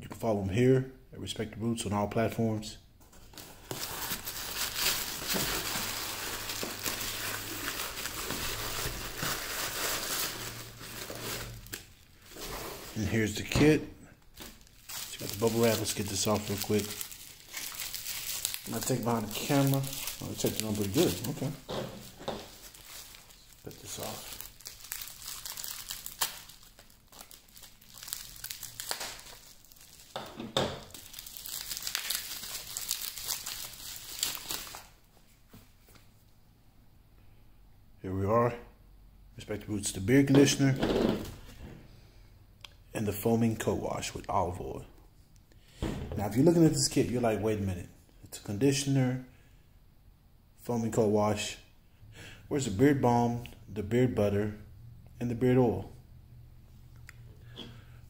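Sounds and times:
paper and bubble wrap crinkling: 3.1s - 13.6s, 14.3s - 35.1s.

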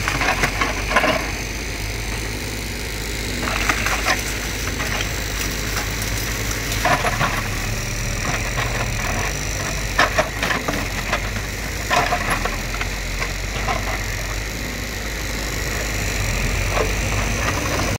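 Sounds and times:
diesel engine running: 0.0s - 17.9s
branches cracking and snapping: 2.2s - 14.2s.

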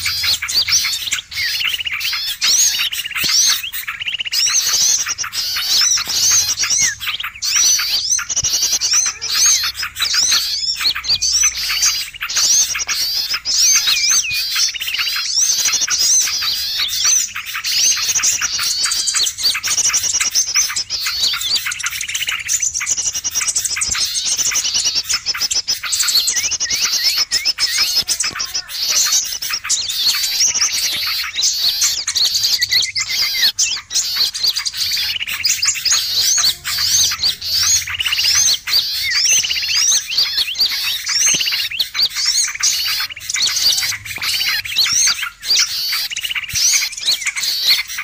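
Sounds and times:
songbirds chirping and trilling: 0.0s - 48.0s.

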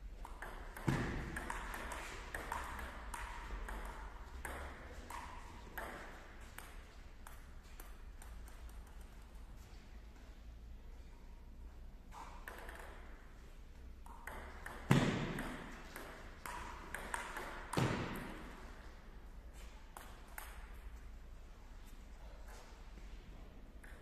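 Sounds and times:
table tennis ball rally: 0.2s - 9.1s, 14.0s - 19.0s.

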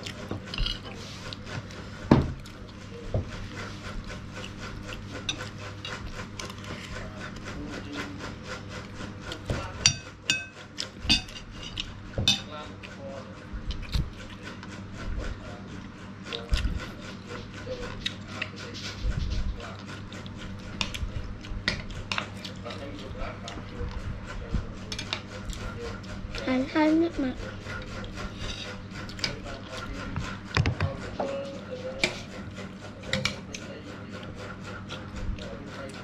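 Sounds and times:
spoon scraping ceramic plate: 27.5s - 33.6s.

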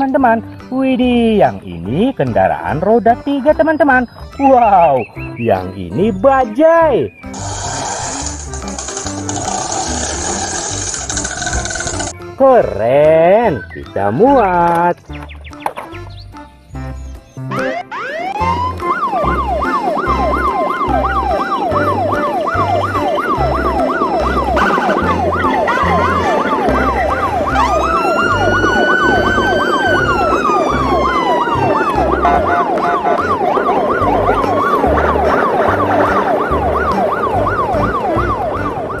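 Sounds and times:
emergency vehicle siren: 17.5s - 39.0s.

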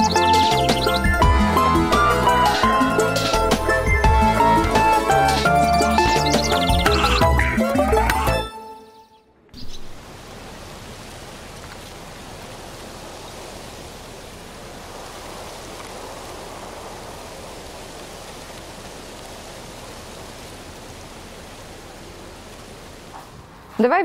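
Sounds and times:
steady rushing noise: 12.4s - 24.0s.

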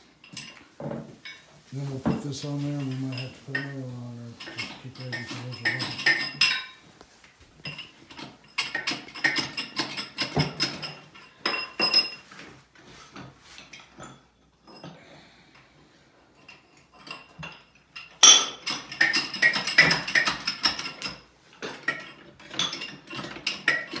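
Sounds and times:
steel plates clanking together: 1.2s - 6.8s.

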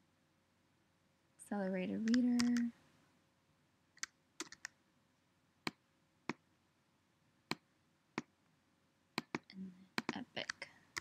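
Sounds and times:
mouse clicks: 2.0s - 2.7s, 4.0s - 4.8s, 9.2s - 11.0s
keyboard keystrokes: 2.1s - 2.7s, 4.4s - 4.7s.

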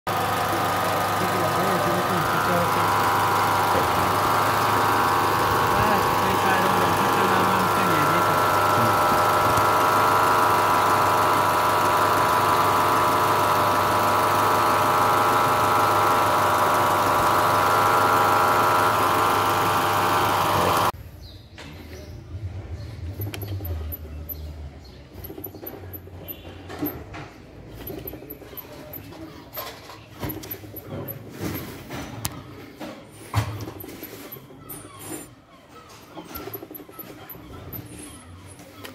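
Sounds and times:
alternator whine: 0.1s - 21.0s
car engine running: 0.1s - 21.0s.

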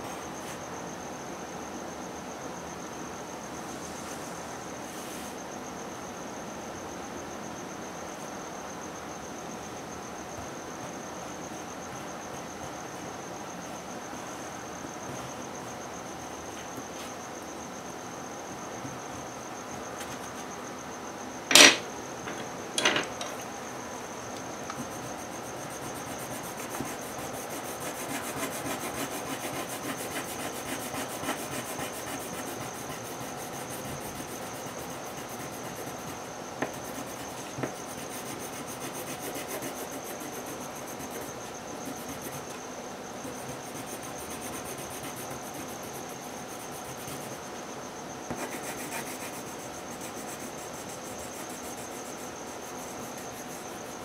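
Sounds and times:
coloured pencil rubbing on paper: 24.8s - 42.6s, 43.2s - 47.4s, 48.3s - 54.0s.

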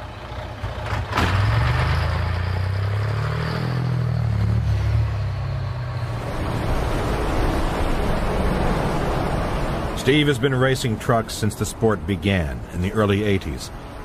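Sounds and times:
truck engine at high revs: 0.0s - 10.0s.

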